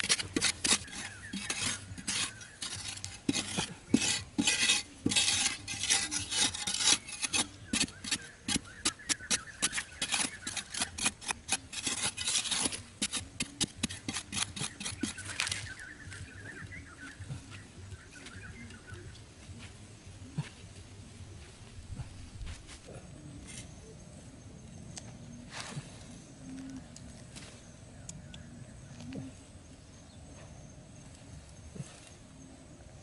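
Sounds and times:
digging bar scraping hard earth: 0.0s - 17.4s.

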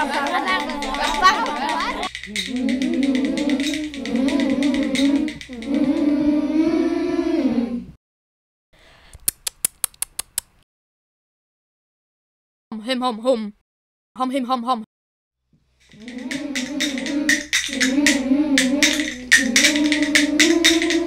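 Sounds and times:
sharp ticks: 0.0s - 5.8s, 9.2s - 10.6s, 15.8s - 21.0s
person singing wordless tune: 0.0s - 7.8s, 15.9s - 21.0s.

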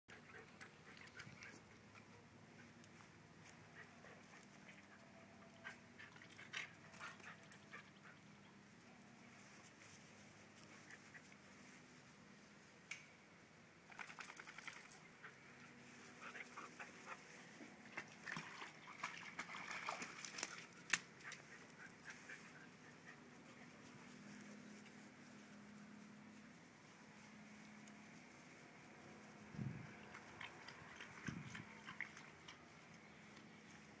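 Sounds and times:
puppies playing scuffles and clicks: 0.2s - 8.2s, 13.9s - 18.1s, 20.0s - 26.2s.

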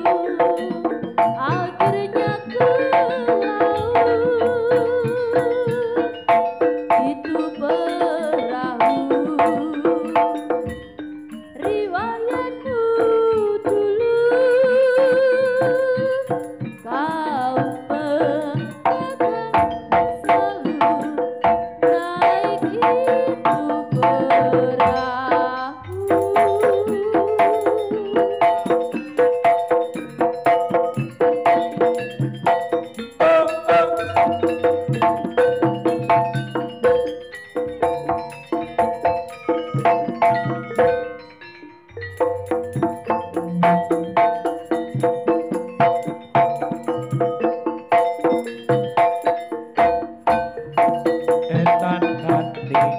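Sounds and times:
drums: 0.0s - 52.9s
metal percussion: 0.0s - 52.9s
wavering melody: 0.0s - 52.9s
low drum beats: 42.1s - 47.4s.

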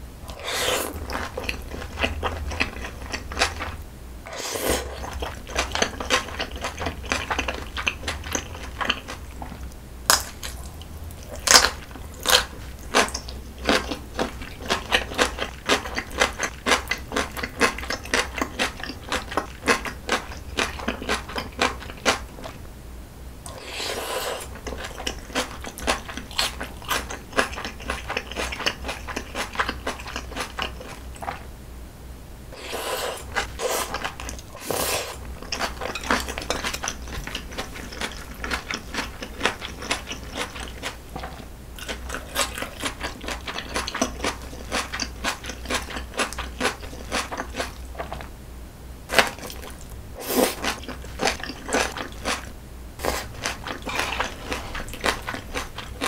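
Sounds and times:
close chewing of noodles: 0.2s - 22.6s, 23.5s - 31.4s, 32.6s - 48.3s, 49.1s - 56.0s.

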